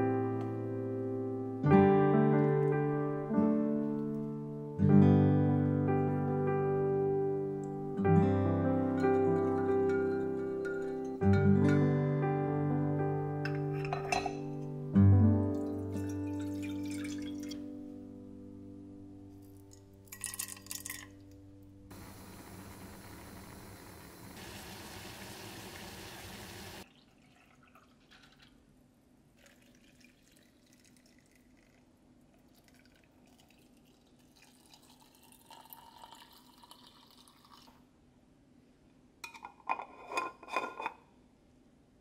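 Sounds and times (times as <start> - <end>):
metal lid clinking on glass jar: 13.4 - 14.6, 39.2 - 41.0
liquid pouring into jar: 15.6 - 17.7, 19.5 - 21.2, 26.9 - 28.6, 29.4 - 37.8
gas burner hissing: 21.9 - 26.8.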